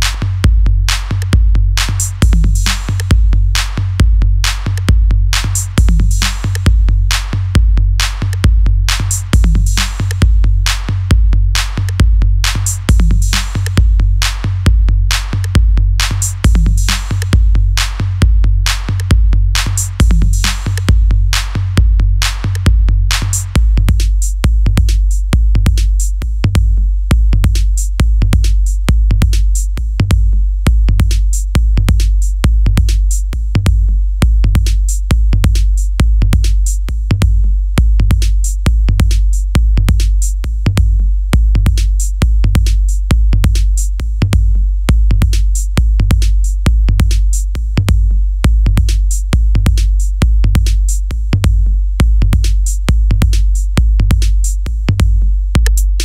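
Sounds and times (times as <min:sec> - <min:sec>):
electronic dance drum loop: 0:00.0 - 0:56.0.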